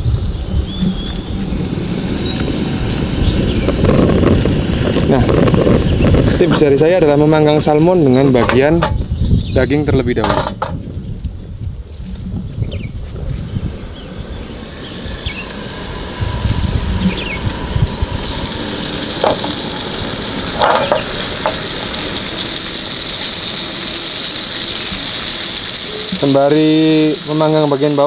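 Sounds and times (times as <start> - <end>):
low rumble: 0.0 - 26.2
fish sizzling in oil: 17.8 - 28.0.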